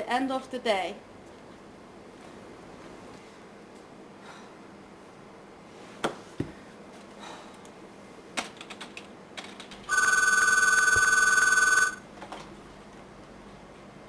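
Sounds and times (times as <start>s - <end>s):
telephone ringing: 9.9s - 12.1s.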